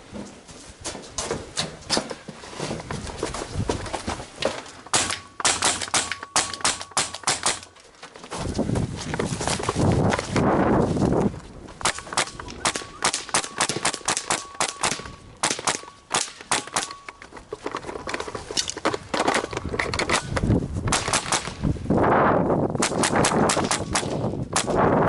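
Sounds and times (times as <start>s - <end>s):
rifle shots: 4.9s - 7.7s, 11.8s - 17.0s, 20.9s - 21.6s, 22.8s - 24.8s.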